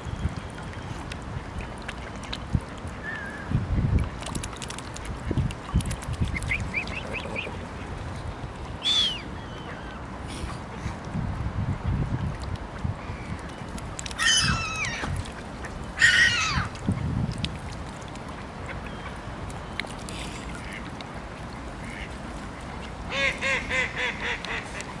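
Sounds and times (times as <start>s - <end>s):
waterfowl calls falling in pitch: 14.2s - 15.2s, 16.0s - 16.8s.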